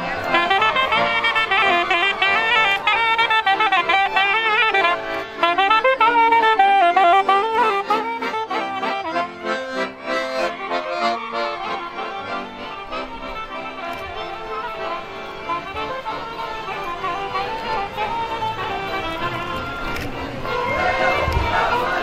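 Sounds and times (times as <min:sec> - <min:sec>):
accordion chords: 0:00.0 - 0:22.0
clarinet: 0:00.0 - 0:22.0
violins: 0:00.0 - 0:22.0.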